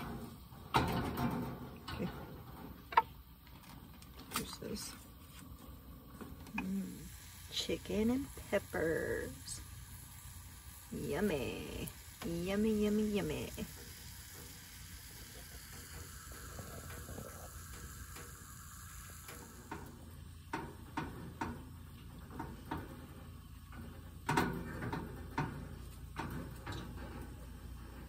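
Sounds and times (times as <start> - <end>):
food sizzling in a frying pan: 6.4 - 21.3.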